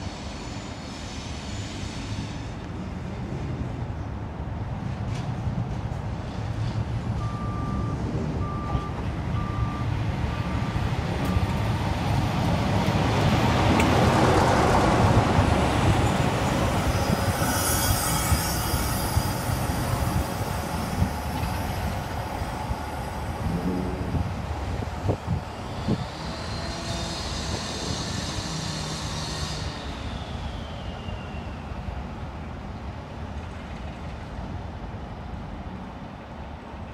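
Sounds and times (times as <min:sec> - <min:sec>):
diesel locomotive engine: 0:00.0 - 0:36.9.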